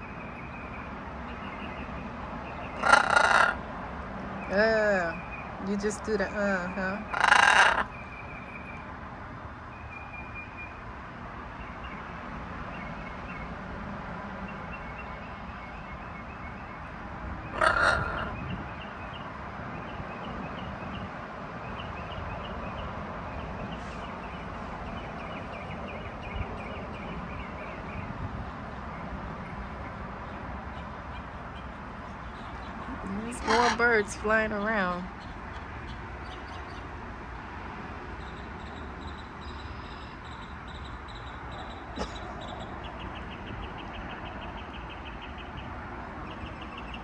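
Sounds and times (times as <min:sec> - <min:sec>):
songbirds chirping: 0:00.0 - 0:13.6, 0:14.4 - 0:47.0
parrot squawking harshly: 0:02.8 - 0:03.6, 0:07.1 - 0:07.9, 0:17.6 - 0:18.4, 0:33.3 - 0:33.8.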